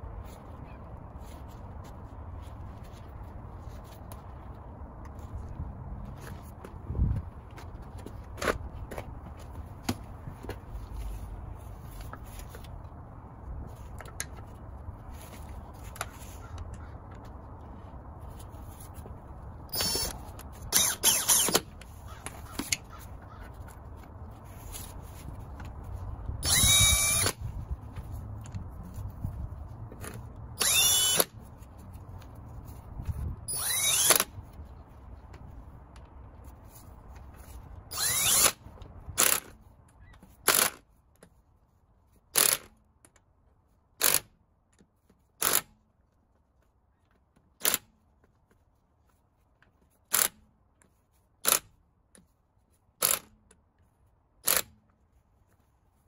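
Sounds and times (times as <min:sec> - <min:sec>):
cordless impact wrench bursts: 0:19.7 - 0:21.8, 0:26.4 - 0:27.4, 0:30.6 - 0:31.4, 0:33.5 - 0:34.4, 0:37.9 - 0:38.6, 0:42.4 - 0:42.7, 0:44.0 - 0:44.3, 0:45.4 - 0:45.7, 0:53.0 - 0:53.3, 0:54.4 - 0:54.7.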